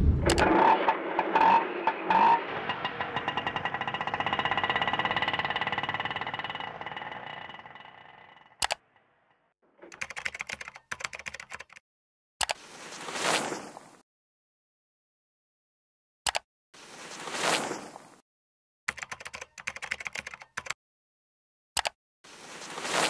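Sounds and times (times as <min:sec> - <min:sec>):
single click: 0:00.2 - 0:00.5
small engine putt-putt: 0:00.3 - 0:09.0
typewriter-like key clicks: 0:09.9 - 0:11.8, 0:18.9 - 0:20.8.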